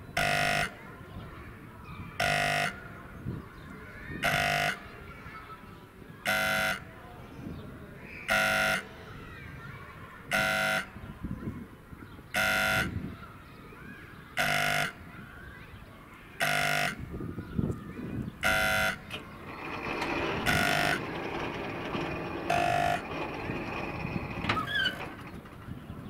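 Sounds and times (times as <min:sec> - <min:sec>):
level crossing buzzer blasts: 0:00.2 - 0:00.8, 0:02.2 - 0:02.8, 0:04.2 - 0:04.8, 0:06.3 - 0:06.9, 0:08.3 - 0:08.9, 0:10.3 - 0:10.9, 0:12.4 - 0:13.0, 0:14.4 - 0:15.0, 0:16.4 - 0:17.1, 0:18.4 - 0:25.3.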